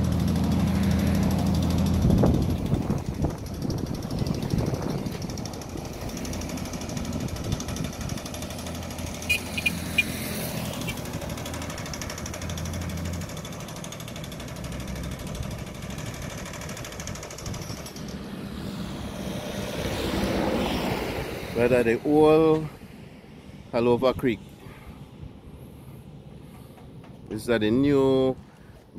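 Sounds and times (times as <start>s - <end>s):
machinery drone with fast rattle: 0.0s - 20.8s.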